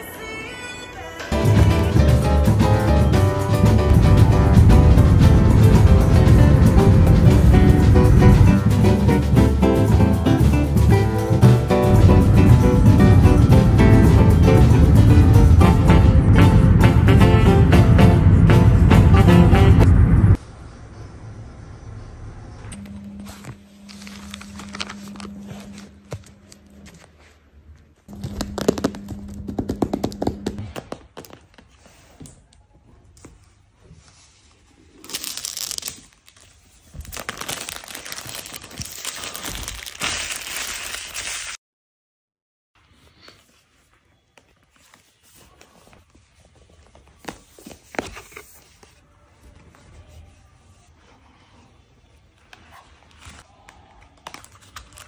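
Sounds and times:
steady low hum: 3.8 - 10.2, 11.5 - 30.6.

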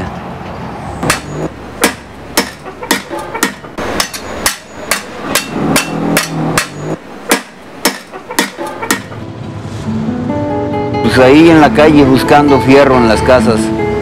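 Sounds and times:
hammer beating metal: 1.0 - 9.2.

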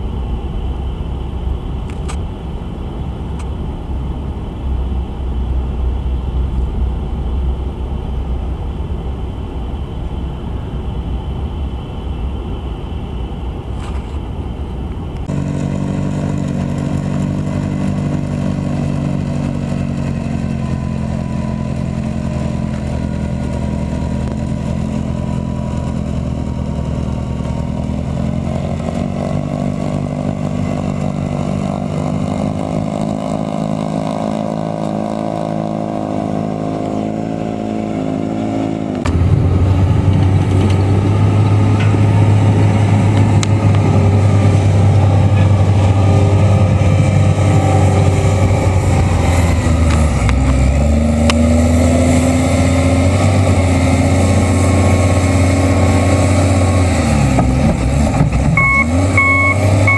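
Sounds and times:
deep diesel engine working: 0.0 - 59.9
tractor engine running under load: 0.0 - 59.9.

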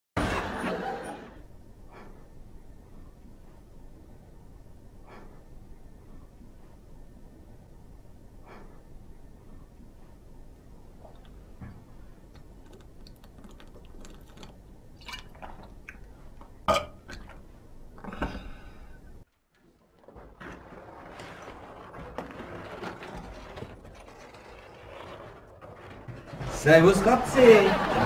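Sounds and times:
man's harsh throat noise: 16.7 - 17.3.

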